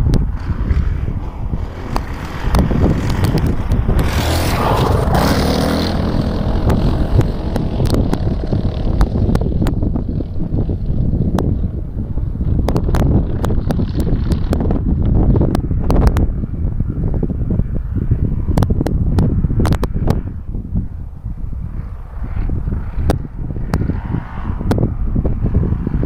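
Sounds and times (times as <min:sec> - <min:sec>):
motorbike engine running: 0:00.0 - 0:16.4
wind buffeting microphone: 0:00.0 - 0:26.0
sharp ticks: 0:06.4 - 0:09.8.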